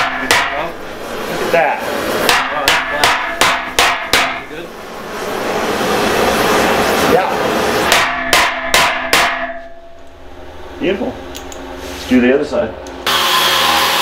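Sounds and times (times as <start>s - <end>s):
hammer striking steel: 0.0s - 0.8s, 2.2s - 4.6s, 7.8s - 10.1s
torch hissing: 0.0s - 8.0s.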